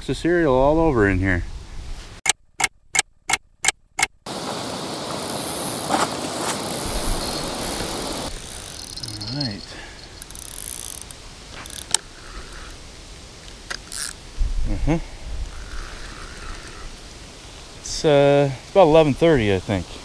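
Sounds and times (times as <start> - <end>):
steady rushing noise: 4.3 - 9.6
mechanical ratchet clicks: 6.9 - 9.6, 10.2 - 12.0.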